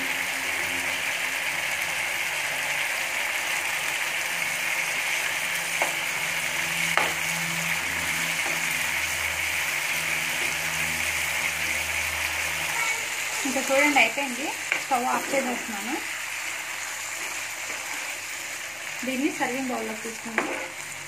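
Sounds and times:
curry sizzling in a pan: 0.0s - 21.0s.

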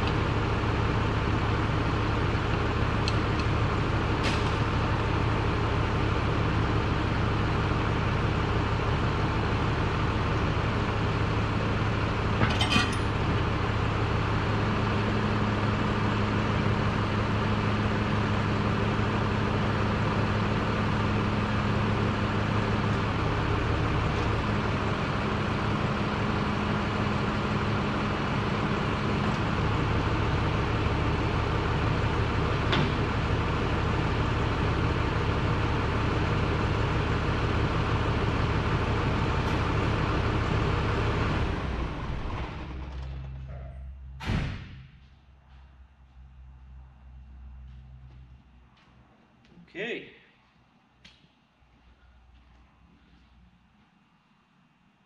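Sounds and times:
machine hum and rumble: 0.0s - 55.0s
metallic clink: 12.4s - 13.2s.

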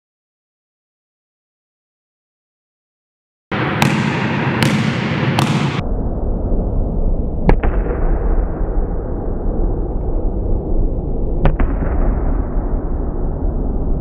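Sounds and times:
basketball bouncing on gym floor: 3.6s - 5.8s.

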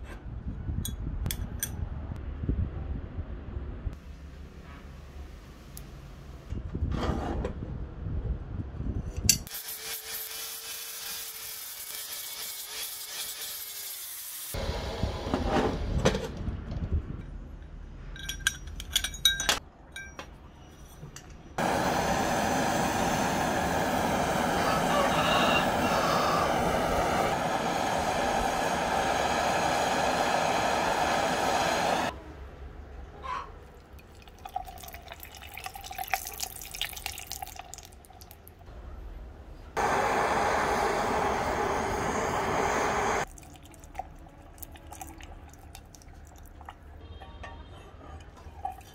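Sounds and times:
heating torch hissing: 21.6s - 32.1s, 39.8s - 43.3s.

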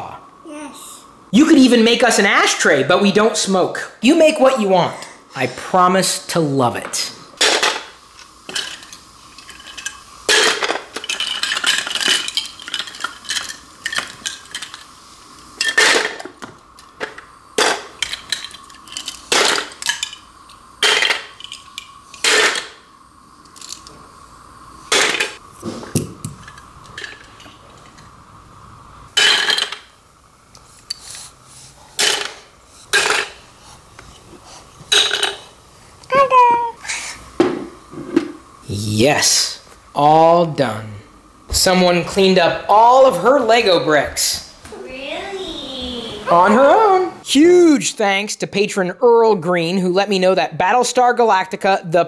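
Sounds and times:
plastic bricks clattering into bowl: 9.6s - 14.8s.

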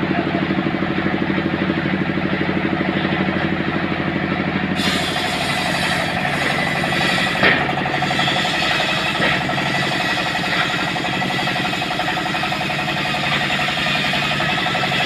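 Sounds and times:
saw engine running under load: 0.0s - 15.0s
circular saw blade grinding wood: 4.6s - 15.0s.

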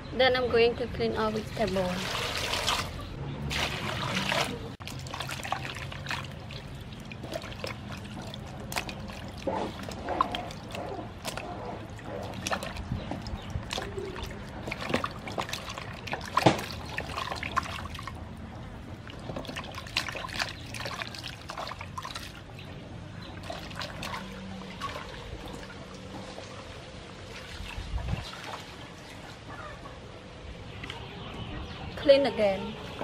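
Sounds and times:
water splashing in metal basin: 1.4s - 29.2s
water dripping: 1.6s - 26.7s.

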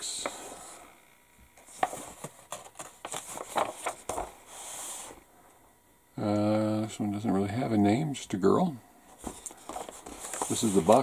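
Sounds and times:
paper pages rustling and turning: 1.6s - 5.1s, 9.2s - 11.0s
fingers tapping and brushing paper: 9.2s - 11.0s.

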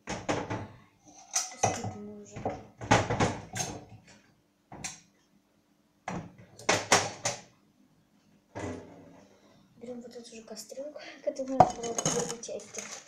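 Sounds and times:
cookware knocking and clattering: 0.0s - 4.1s, 11.5s - 13.0s.

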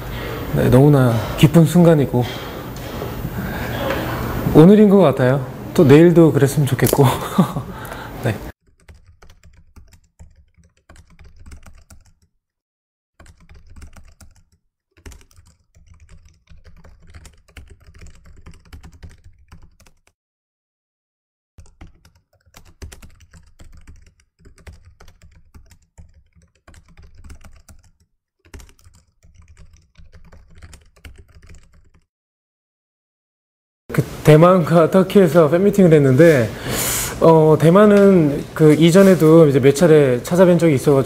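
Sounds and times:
rapid keyboard keystrokes: 8.6s - 12.3s, 13.2s - 20.2s, 21.6s - 32.1s.

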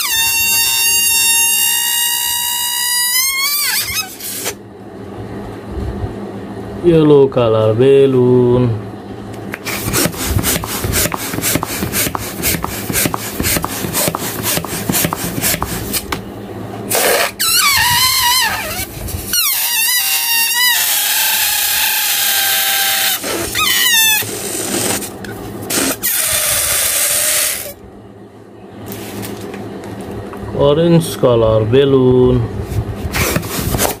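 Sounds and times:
balloon being pumped up: 0.0s - 4.6s, 9.6s - 16.2s, 16.9s - 27.8s, 33.0s - 34.0s
balloon deflating with squealing: 0.0s - 4.6s, 9.6s - 16.1s, 16.9s - 25.1s, 25.7s - 27.8s.

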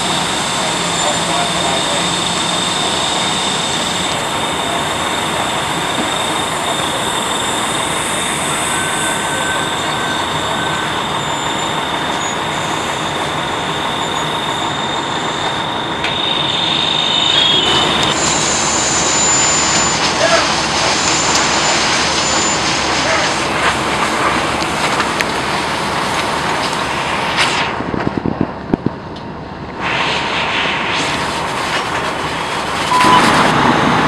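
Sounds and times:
fire engine pumps running: 0.0s - 34.0s
high whistling tones: 0.6s - 22.8s, 32.8s - 33.4s.

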